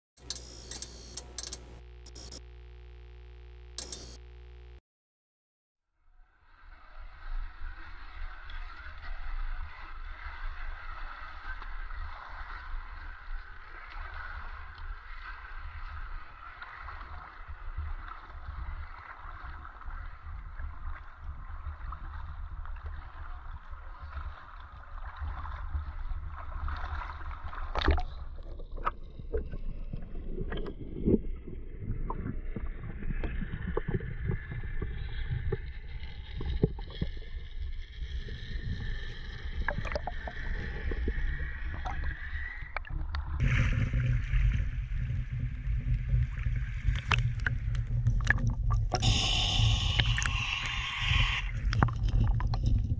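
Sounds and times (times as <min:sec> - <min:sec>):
sharp click: 0:00.2 - 0:02.4, 0:03.8 - 0:04.2
muffled underwater gurgling and knocking: 0:42.8 - 0:52.9.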